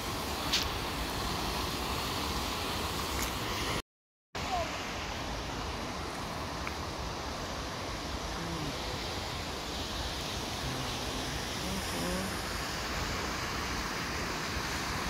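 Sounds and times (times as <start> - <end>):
water rushing through rocky channel: 4.4 - 15.0.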